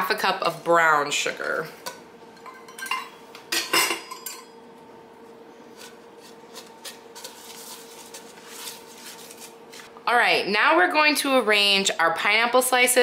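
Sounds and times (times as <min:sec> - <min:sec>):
utensils clinking on skillet: 0:01.9 - 0:04.6
spatula scraping pan: 0:05.6 - 0:10.0.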